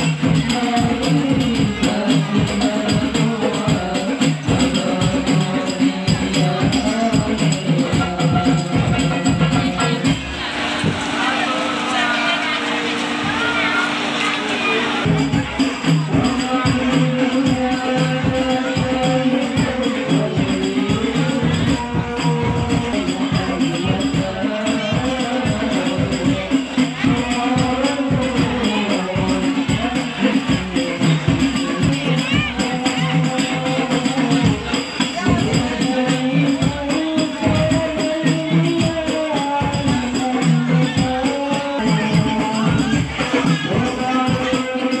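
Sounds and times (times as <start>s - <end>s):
men singing through microphones: 0.0s - 12.8s, 14.6s - 45.0s
music with fast percussion beat: 0.0s - 45.0s.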